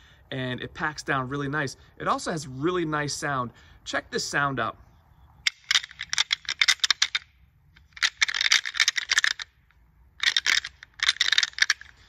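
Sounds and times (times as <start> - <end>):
plastic rattling device clicking: 5.5 - 7.2, 7.8 - 9.5, 10.2 - 12.0.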